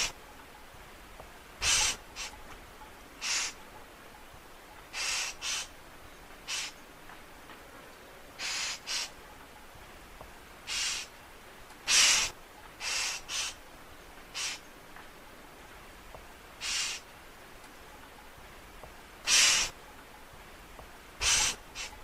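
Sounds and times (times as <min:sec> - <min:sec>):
bird giving harsh rasping calls: 0:01.6 - 0:02.4, 0:03.2 - 0:03.6, 0:04.9 - 0:05.8, 0:06.4 - 0:06.8, 0:08.4 - 0:09.2, 0:10.6 - 0:11.2, 0:11.8 - 0:13.6, 0:14.3 - 0:14.7, 0:16.6 - 0:17.1, 0:19.2 - 0:19.8, 0:21.2 - 0:22.0.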